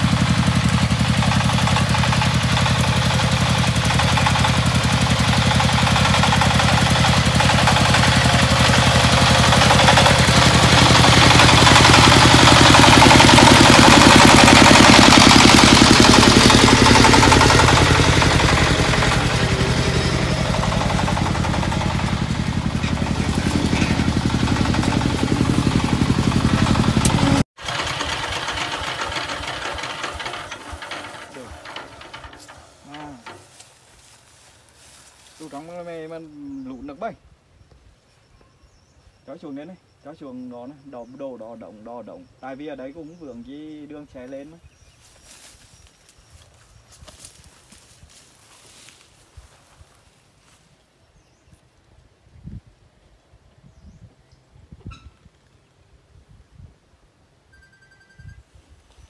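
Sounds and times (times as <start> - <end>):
walking tractor diesel engine running: 0.0 - 35.6
quieter engine sound: 0.0 - 37.2, 38.6 - 51.4.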